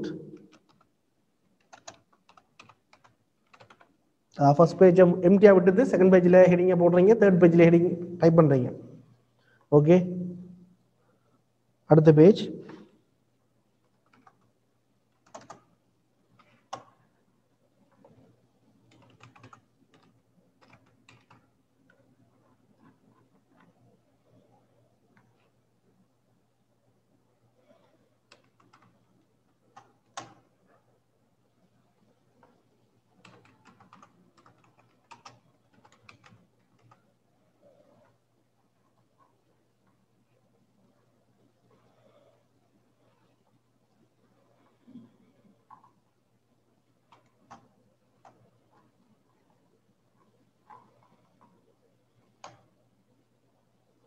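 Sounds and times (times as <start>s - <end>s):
computer keyboard typing: 0.0s - 0.9s, 1.6s - 4.0s, 13.8s - 17.1s, 17.9s - 23.8s, 27.8s - 30.5s, 33.2s - 37.1s, 45.6s - 46.0s, 47.0s - 49.6s, 50.6s - 52.7s.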